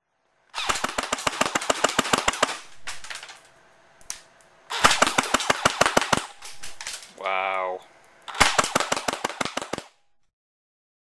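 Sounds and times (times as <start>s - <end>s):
airsoft rifle firing in bursts: 0.5s - 3.2s, 4.7s - 7.0s, 8.3s - 10.0s.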